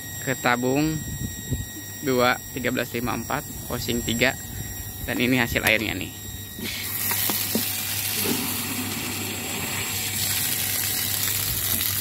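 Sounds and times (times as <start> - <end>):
water pouring into plastic tank: 6.8 - 12.0.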